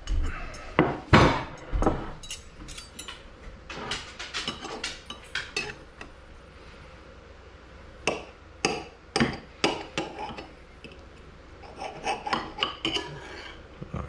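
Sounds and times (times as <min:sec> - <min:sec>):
cutlery scraping a bowl: 0:01.9 - 0:03.2, 0:03.8 - 0:06.1, 0:08.1 - 0:11.0, 0:11.6 - 0:13.6.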